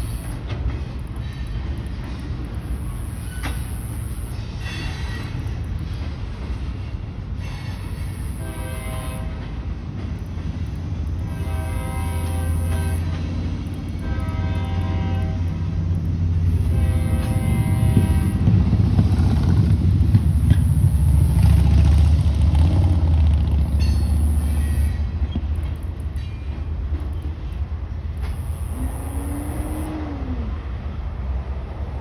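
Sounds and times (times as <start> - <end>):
train cars clanking: 0.0 - 29.9
train wheels rumbling on rail: 0.0 - 32.0.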